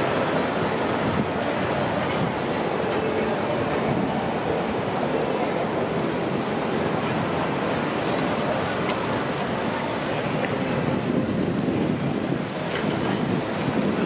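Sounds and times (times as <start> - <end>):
street noise: 0.0 - 14.0
train wheels squealing on track: 1.4 - 9.2.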